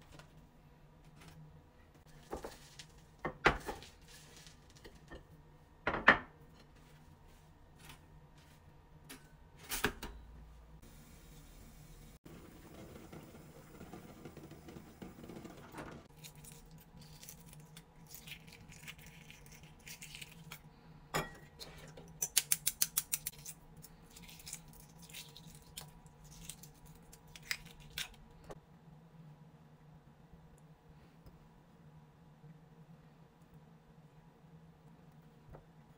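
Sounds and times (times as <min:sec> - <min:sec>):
eggshells cracking and crinkling: 0:16.1 - 0:20.7, 0:22.1 - 0:28.4.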